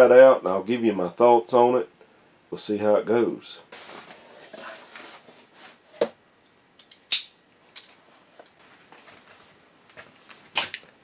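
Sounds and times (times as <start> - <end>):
cardboard rustling: 3.7 - 6.1.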